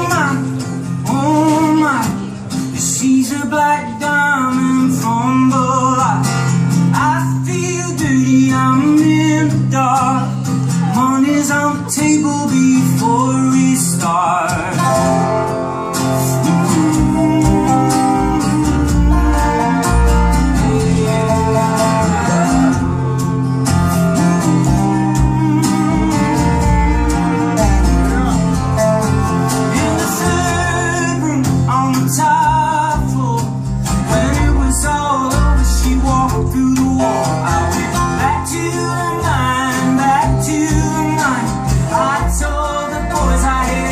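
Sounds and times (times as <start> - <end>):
acoustic guitar: 0.0 - 43.9
electric guitar: 0.0 - 43.9
upright bass: 0.0 - 43.9
person singing: 7.0 - 23.1, 24.1 - 43.9
voices singing together: 16.5 - 23.0, 24.3 - 31.2, 37.0 - 43.9.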